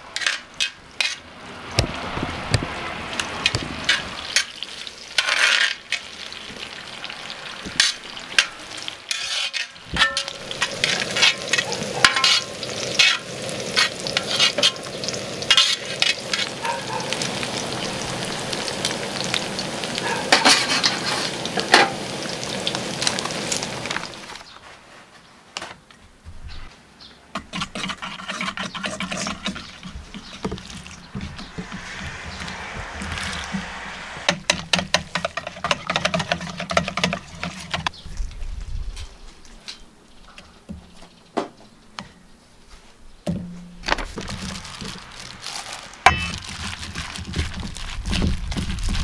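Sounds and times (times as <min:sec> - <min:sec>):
metal bowl clank: 0:09.2 - 0:13.2, 0:46.1 - 0:46.5
water pouring: 0:12.4 - 0:24.4, 0:44.0 - 0:49.0
whisk scraping metal bowl: 0:27.4 - 0:31.8, 0:34.5 - 0:37.9.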